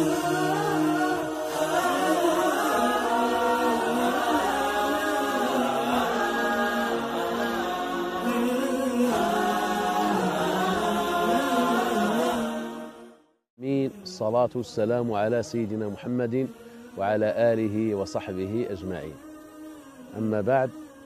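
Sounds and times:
voices singing unaccompanied: 0.0s - 21.0s.

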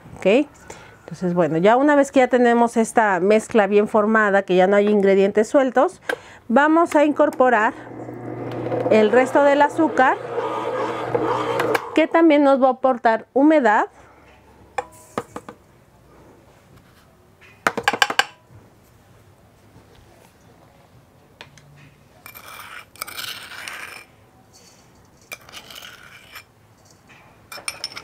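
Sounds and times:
spoon scraping glass bowl: 22.3s - 28.0s
metal spoon clinking on glass bowl: 26.8s - 28.0s.

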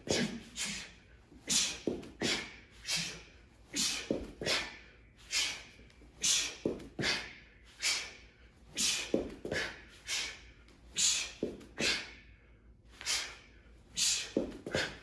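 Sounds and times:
man's sharp hissing exhales: 0.2s - 10.4s.

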